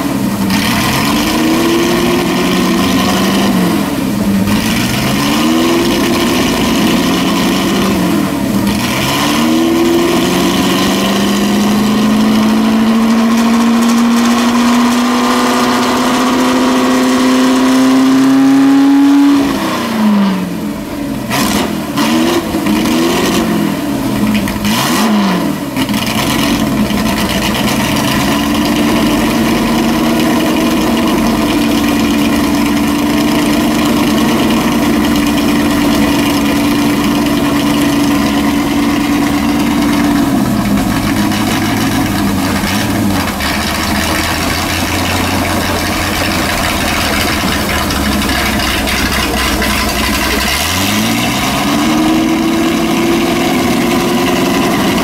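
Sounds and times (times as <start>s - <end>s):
car engine revving: 0.0s - 55.0s
wheels spinning: 25.8s - 55.0s.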